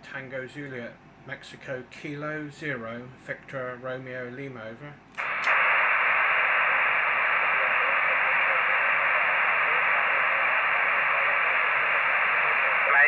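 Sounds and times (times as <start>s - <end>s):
radio static hiss: 5.2s - 13.0s.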